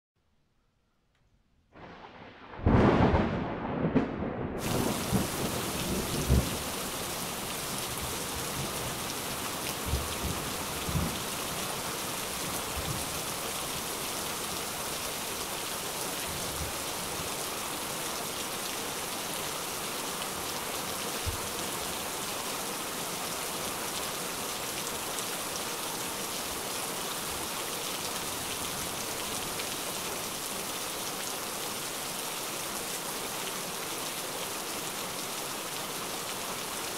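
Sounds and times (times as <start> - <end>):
thunder rolling: 1.8 - 6.6
heavy rain hiss: 4.6 - 36.9.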